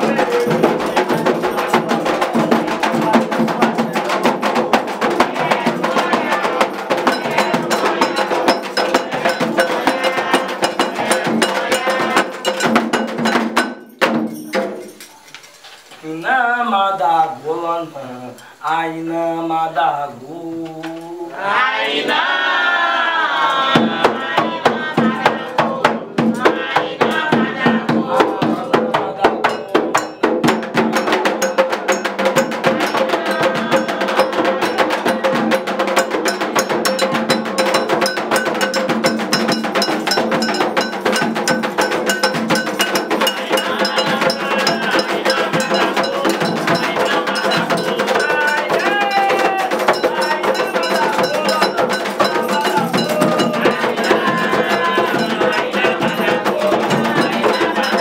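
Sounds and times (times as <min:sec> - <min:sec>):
metal bell struck rhythmically: 0:00.0 - 0:04.0, 0:05.7 - 0:15.1, 0:29.5 - 0:58.0
voices singing: 0:00.0 - 0:13.8, 0:15.9 - 0:58.0.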